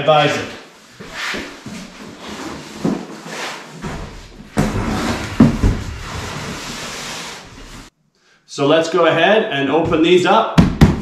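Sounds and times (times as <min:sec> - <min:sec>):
cardboard box rustling and scraping: 0:01.0 - 0:07.9.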